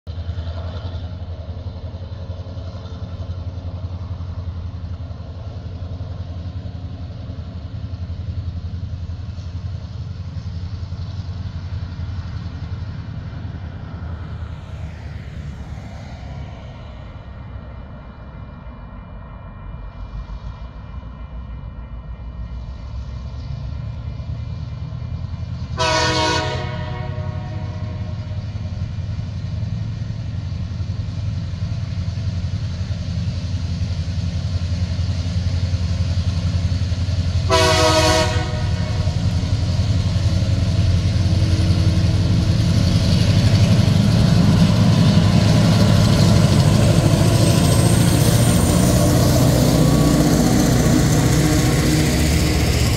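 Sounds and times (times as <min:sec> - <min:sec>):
diesel locomotive engine drone: 0:00.0 - 0:52.9
train air horn blasts: 0:25.8 - 0:28.4, 0:37.4 - 0:39.4.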